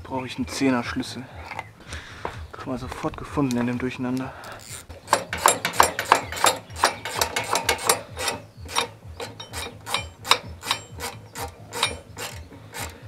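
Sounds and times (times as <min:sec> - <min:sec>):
ratchet wrench clicking: 0:04.4 - 0:13.0.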